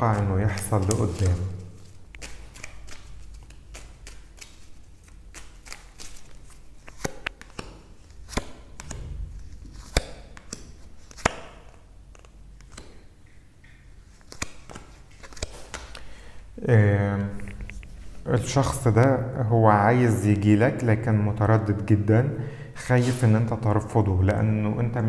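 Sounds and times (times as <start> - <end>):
cards shuffling and clicking: 0.0 - 13.1, 14.1 - 16.1.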